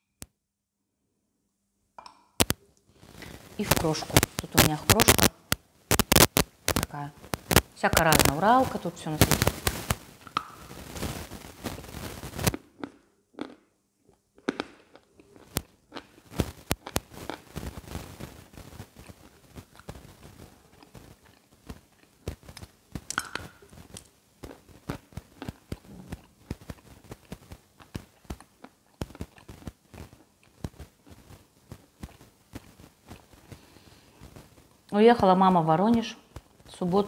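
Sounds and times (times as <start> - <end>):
chalk crunching when chewed: 12.4 - 17.8, 18.9 - 34.0.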